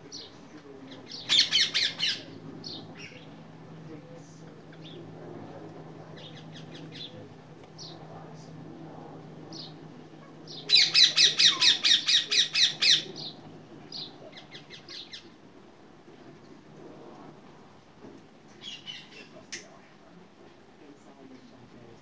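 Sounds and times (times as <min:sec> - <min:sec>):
parakeets squawking: 0:00.9 - 0:03.3, 0:10.5 - 0:15.3, 0:18.6 - 0:19.4.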